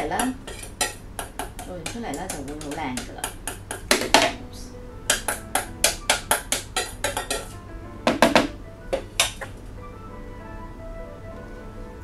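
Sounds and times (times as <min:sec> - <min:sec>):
utensil tapping metal bowl: 0:00.0 - 0:04.4, 0:05.1 - 0:09.6.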